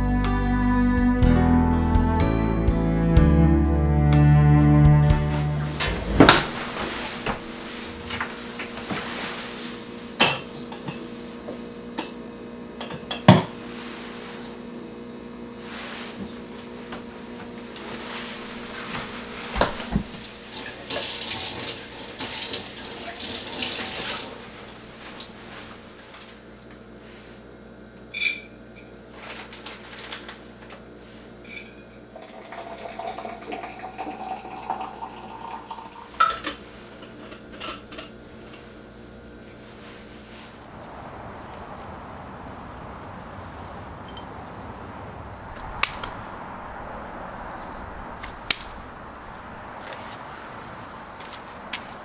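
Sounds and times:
cabinet doors and dishes clinking: 5.6 - 8.4.

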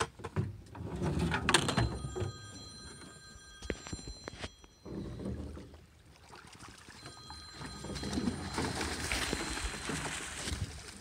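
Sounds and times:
steady high ringing: 1.5 - 6.0, 6.8 - 10.5
water sloshing: 1.6 - 11.0.

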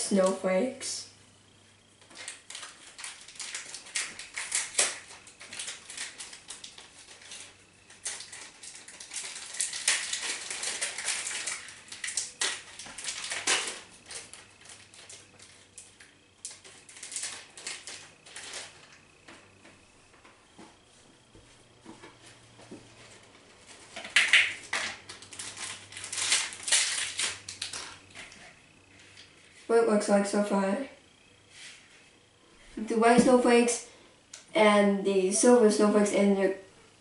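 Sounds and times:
plastic packet crinkling: 2.0 - 19.0, 23.8 - 28.4.

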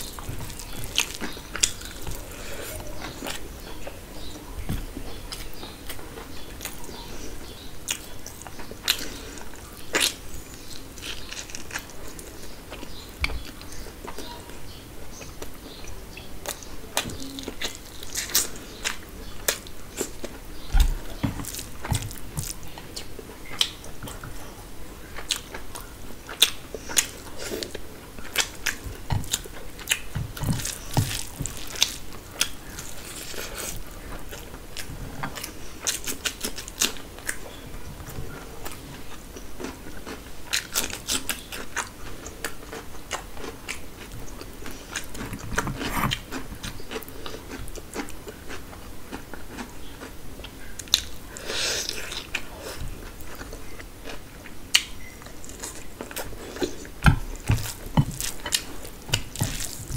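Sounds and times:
person chewing food: 0.0 - 59.9.

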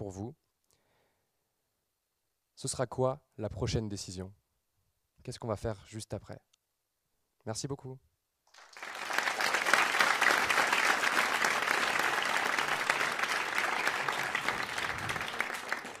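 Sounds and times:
audience applauding: 8.5 - 16.0.

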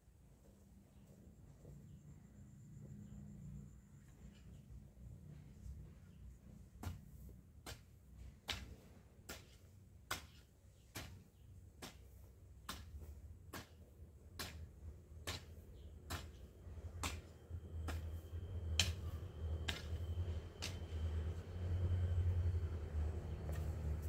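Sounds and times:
hoe chopping into soil: 6.8 - 16.4, 17.0 - 20.0
low background rumble: 11.4 - 24.0.

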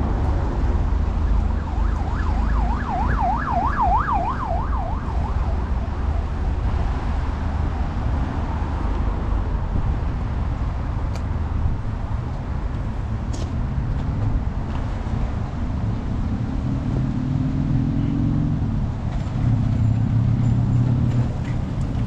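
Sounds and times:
city traffic rumble: 0.0 - 22.0
siren yelping: 1.5 - 6.2.

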